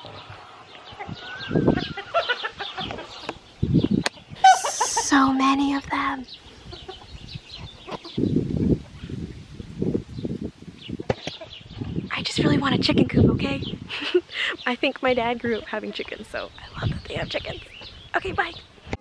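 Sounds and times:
chickens clucking: 0:00.0 - 0:05.3, 0:06.5 - 0:09.1, 0:11.0 - 0:12.0, 0:15.2 - 0:18.0
wind buffeting microphone: 0:00.0 - 0:19.0.

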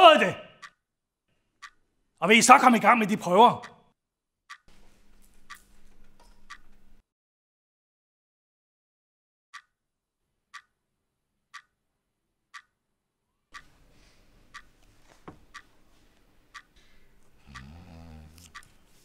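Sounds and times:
wall clock ticking: 0:00.0 - 0:00.8, 0:01.6 - 0:03.8, 0:04.5 - 0:07.0, 0:09.6 - 0:09.8, 0:10.5 - 0:10.8, 0:11.5 - 0:11.8, 0:12.5 - 0:12.8, 0:13.5 - 0:19.0.

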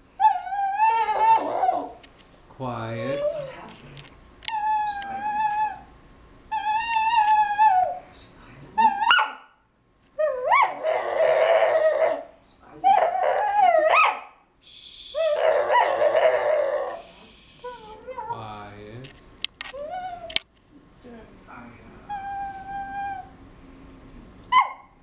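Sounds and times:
dog whining and yowling: 0:00.2 - 0:02.0, 0:03.0 - 0:03.6, 0:04.5 - 0:05.9, 0:06.5 - 0:08.0, 0:08.8 - 0:09.5, 0:10.2 - 0:14.4, 0:15.1 - 0:18.4, 0:19.6 - 0:20.4, 0:22.1 - 0:23.4, 0:24.5 - 0:24.9.

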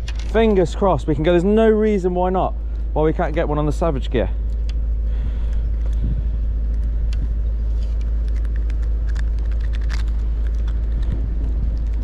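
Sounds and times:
wind buffeting microphone: 0:05.2 - 0:08.8, 0:10.2 - 0:12.0
small ticks and clicks: 0:07.9 - 0:12.0.

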